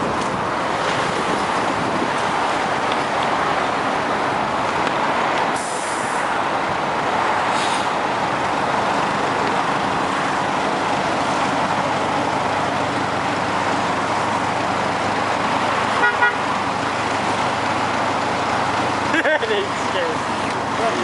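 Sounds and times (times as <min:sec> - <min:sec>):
bus engine running: 0:00.0 - 0:21.0
traffic noise: 0:00.0 - 0:21.0
pneumatic door air hiss: 0:07.5 - 0:07.9.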